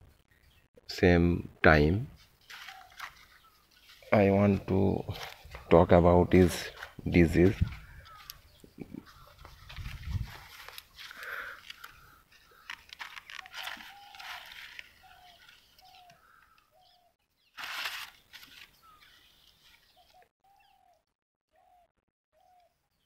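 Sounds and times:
rustles and clicks: 2.2 - 5.8, 6.4 - 16.2, 17.6 - 20.2
bird calling: 2.2 - 22.8.

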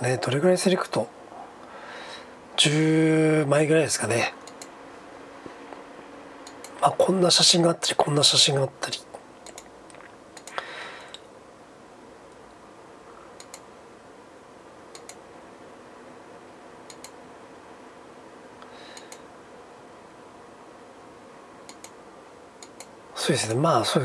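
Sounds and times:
faint hiss of room tone: 0.0 - 24.0
computer mouse clicking: 4.4 - 4.7, 6.4 - 6.8, 9.4 - 9.7, 10.4 - 10.6, 13.4 - 13.7, 14.9 - 15.2, 16.9 - 17.2, 18.9 - 19.2, 21.6 - 22.0, 22.6 - 22.9.

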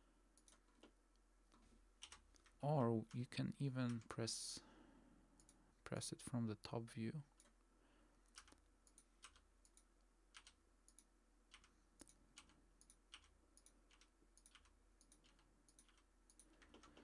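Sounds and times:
computer keyboard and mouse clicks: 8.3 - 17.0.

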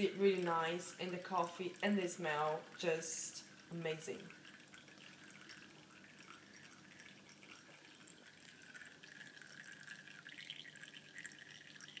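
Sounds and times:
coffee trickling and dripping: 0.0 - 12.0.

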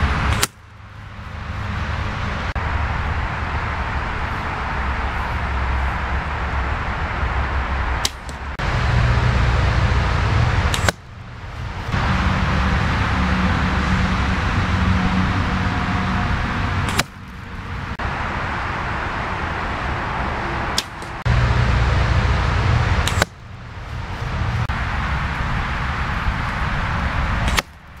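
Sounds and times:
steady low rumble: 0.0 - 28.0
arrows striking foam target: 0.3 - 0.7, 8.0 - 8.5, 10.5 - 11.1, 16.8 - 17.2, 20.8 - 21.2, 22.9 - 23.4, 27.4 - 27.8.

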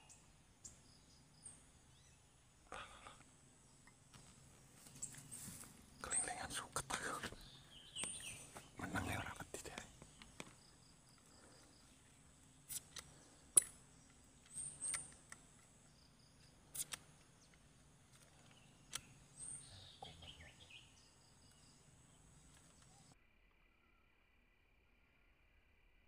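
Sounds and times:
high bird chirps: 6.0 - 10.3
sharp clicks: 16.4 - 19.2.

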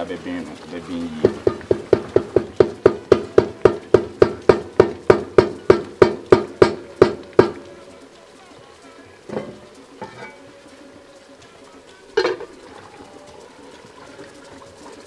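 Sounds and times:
wooden spatula knocking metal pot: 1.2 - 7.6, 9.3 - 10.4.

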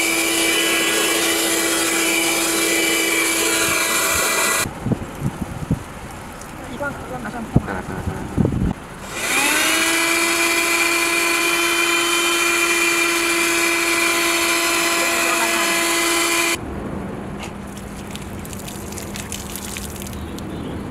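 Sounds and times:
handheld vacuum motor whine: 0.0 - 4.7, 9.0 - 16.6
water pouring over mat: 17.7 - 20.5.

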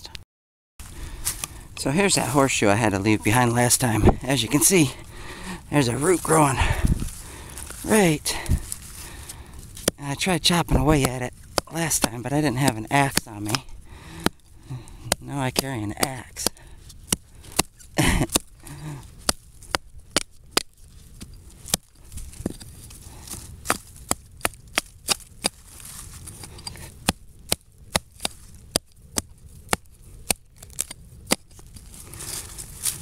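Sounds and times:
hatchet chopping into tree root: 9.7 - 10.0, 10.7 - 25.6, 26.3 - 31.8.

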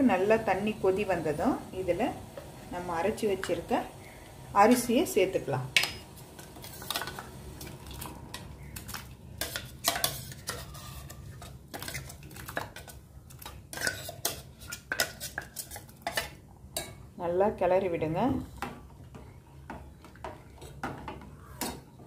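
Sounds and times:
water boiling in a pot: 0.0 - 16.9
steel kitchenware clinking: 8.8 - 12.9.

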